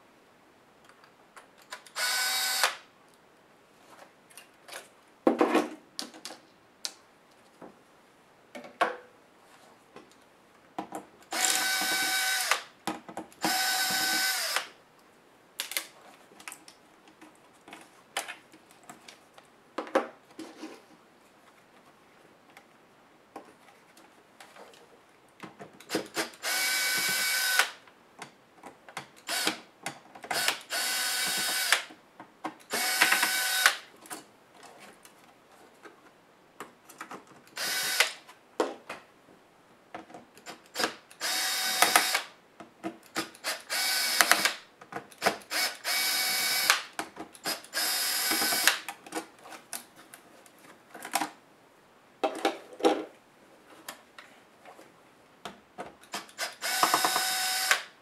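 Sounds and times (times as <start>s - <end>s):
electric screwdriver whining: 2.0s - 2.8s, 11.3s - 12.6s, 13.4s - 14.7s, 25.9s - 27.7s, 29.3s - 29.6s, 30.3s - 31.9s, 32.7s - 33.8s, 37.6s - 38.2s, 40.7s - 42.3s, 43.4s - 44.5s, 45.5s - 46.8s, 47.4s - 48.8s, 56.2s - 57.9s.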